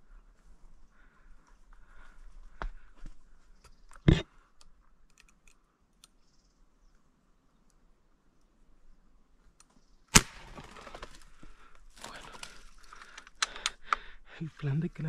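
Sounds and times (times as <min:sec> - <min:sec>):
air rifle handling clicks: 0:12.4 - 0:14.1.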